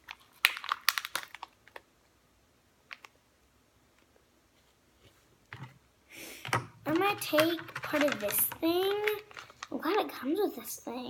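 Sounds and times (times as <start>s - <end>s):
plastic packet clicks: 0.4s - 1.9s, 6.5s - 9.7s.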